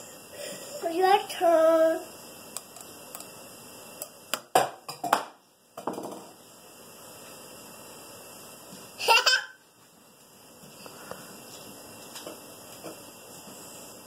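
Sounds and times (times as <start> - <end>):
toddler giggling: 9.0 - 9.6.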